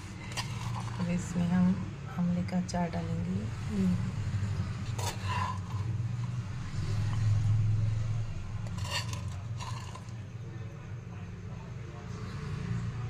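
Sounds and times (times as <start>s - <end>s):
spoon scraping ceramic jar: 0.2s - 1.1s, 4.8s - 6.0s, 8.6s - 10.2s.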